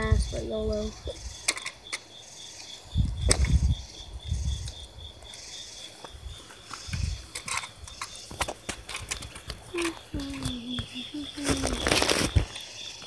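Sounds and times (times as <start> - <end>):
crickets chirping: 0.0 - 13.0
gun parts clicking: 6.7 - 10.5.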